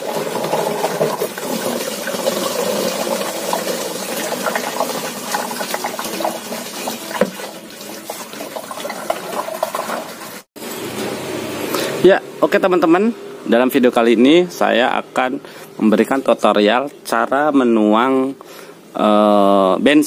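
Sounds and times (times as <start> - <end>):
fuel glugging out of bottles: 0.0 - 10.4.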